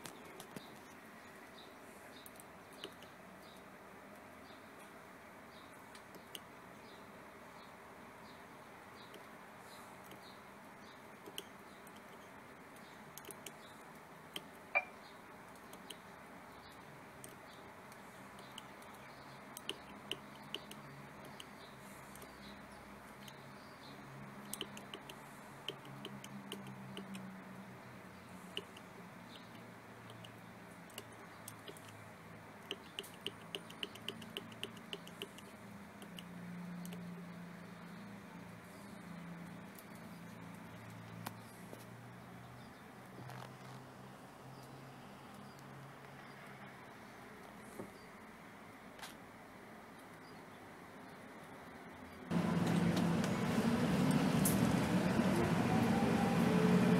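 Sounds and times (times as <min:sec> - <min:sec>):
sharp button clicks: 0:14.8 - 0:15.0
bus diesel engine idling: 0:52.3 - 0:56.9.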